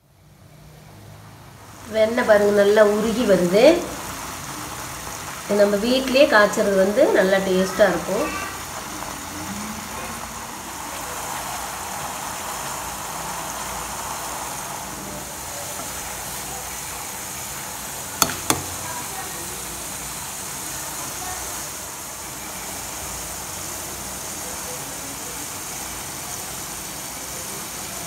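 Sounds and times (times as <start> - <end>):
butter sizzling and bubbling in pan: 0.2 - 28.0
sharp knocks: 18.2 - 18.8.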